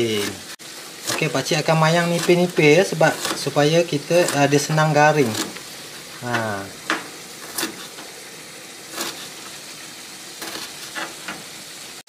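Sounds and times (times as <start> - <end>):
paste frying in oil: 0.0 - 12.0
knife cutting on chopping board: 2.0 - 4.6, 5.2 - 8.2, 8.8 - 9.7, 10.4 - 11.6.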